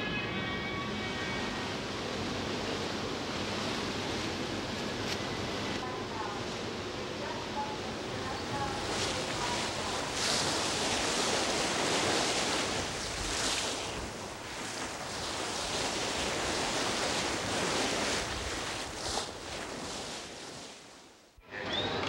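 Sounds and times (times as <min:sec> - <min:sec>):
water rushing in ship's wake: 0:00.9 - 0:22.0
wind buffeting microphone: 0:07.4 - 0:20.3.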